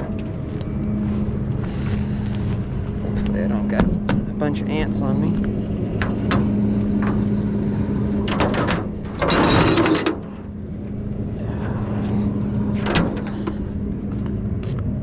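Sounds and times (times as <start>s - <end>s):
truck engine humming: 0.0s - 15.0s
winch cable clinking on metal deck: 8.2s - 10.5s.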